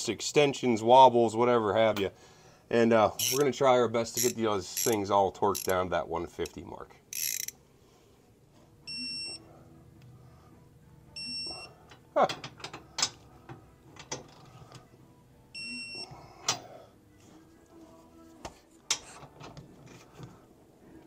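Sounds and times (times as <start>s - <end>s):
torque wrench beeps: 3.2s - 3.4s, 4.2s - 5.0s, 7.2s - 7.5s, 8.9s - 9.4s, 15.6s - 16.1s
tools clicking and clanking: 3.2s - 5.8s, 6.4s - 7.6s.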